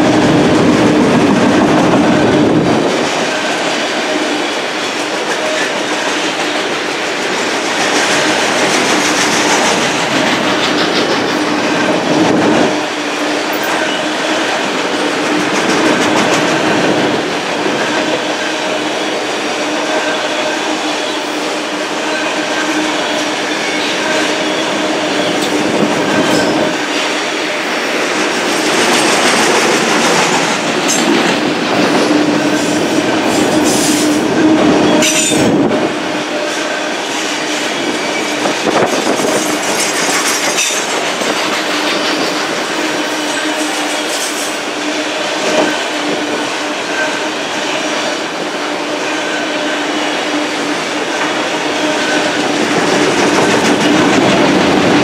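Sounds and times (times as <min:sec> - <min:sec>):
wheels clicking over rail joints: 0:00.0 - 0:18.2, 0:28.1 - 0:35.6, 0:36.5 - 0:44.6
train wheels rumbling on rail: 0:00.0 - 0:55.0.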